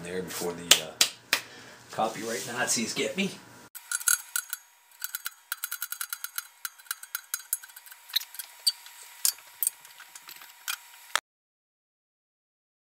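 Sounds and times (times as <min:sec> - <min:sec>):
metal parts clinking: 0:03.8 - 0:10.9.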